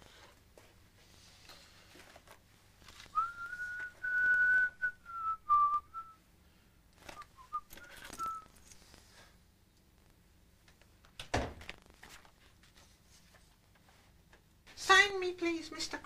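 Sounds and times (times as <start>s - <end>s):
man whistling a tune: 3.2s - 6.2s, 7.2s - 8.5s.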